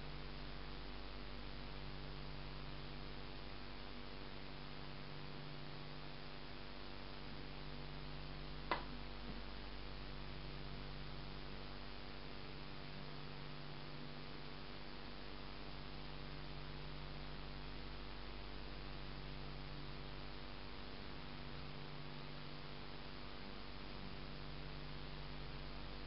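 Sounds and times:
electrical mains hum: 0.0 - 26.0
recording hiss: 0.0 - 26.0
sharp click: 8.7 - 8.9.

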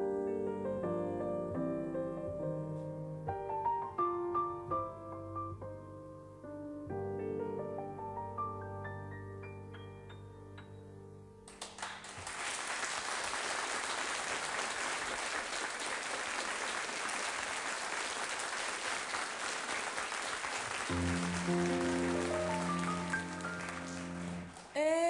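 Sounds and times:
piano trio with double bass: 0.0 - 11.6, 20.9 - 24.6
soft piano notes: 0.0 - 11.6, 20.9 - 24.7
audience applause: 11.5 - 24.7.

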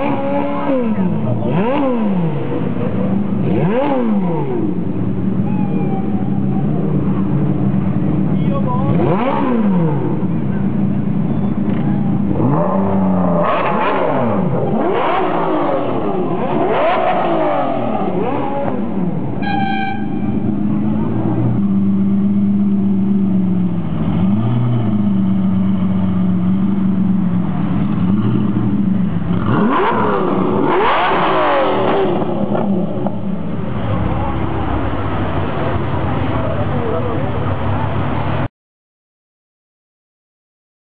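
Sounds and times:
car engine idling: 0.0 - 13.4, 17.5 - 30.9
car engine revving: 0.0 - 38.5
car horn toot: 19.4 - 20.4.

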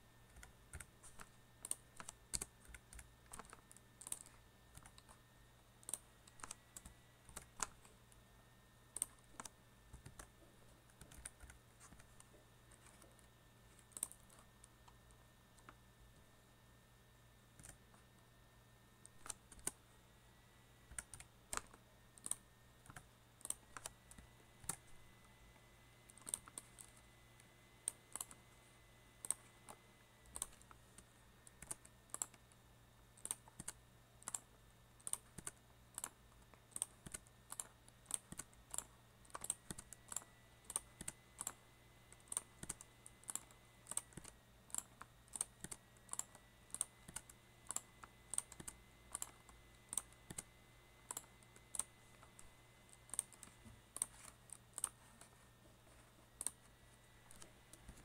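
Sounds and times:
keyboard keystrokes clicking: 0.3 - 5.2, 5.8 - 7.9, 8.9 - 13.2, 13.8 - 14.4, 17.6 - 17.8, 19.0 - 19.8, 20.9 - 24.9, 26.1 - 27.0, 27.8 - 28.4, 29.2 - 30.7, 33.2 - 41.6, 42.2 - 55.3.

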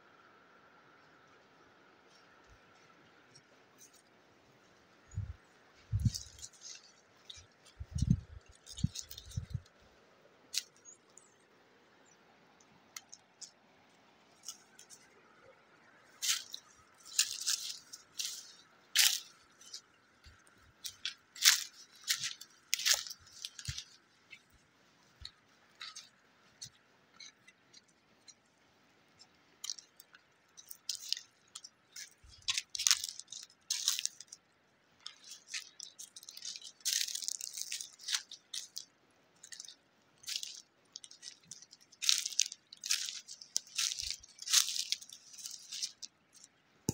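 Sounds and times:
footsteps crunching dry leaves: 5.1 - 9.8, 16.1 - 27.3, 30.6 - 34.4, 35.0 - 46.5.

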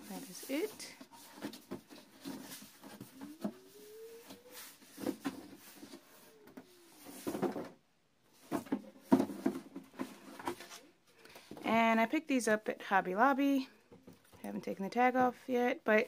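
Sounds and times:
cardboard rubbing and scraping: 0.0 - 7.7.

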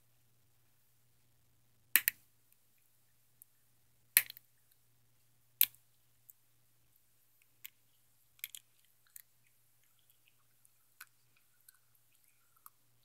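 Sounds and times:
sharp snaps: 2.0 - 2.2.

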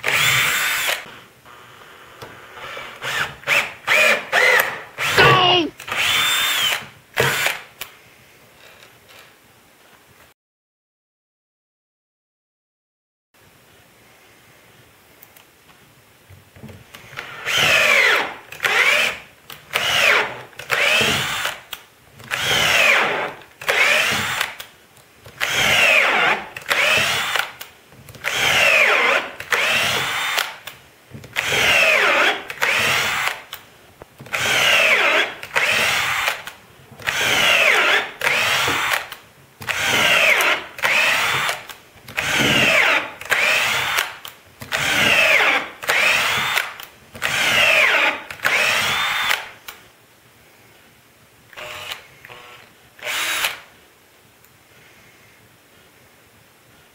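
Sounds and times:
drill driving screw into wood: 0.0 - 1.2, 2.6 - 7.7, 17.0 - 24.7, 25.4 - 33.6, 34.2 - 49.7, 51.6 - 53.7.

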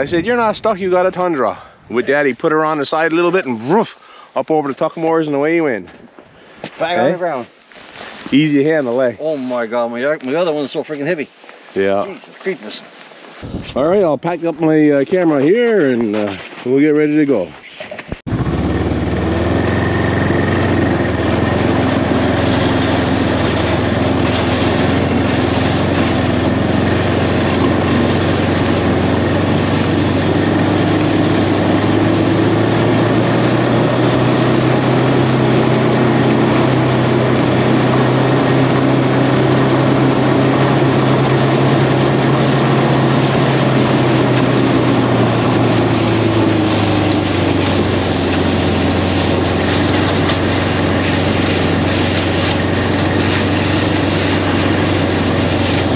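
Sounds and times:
snowmobile engine running: 6.8 - 7.4, 18.3 - 55.9
steady rushing noise: 18.3 - 55.9.

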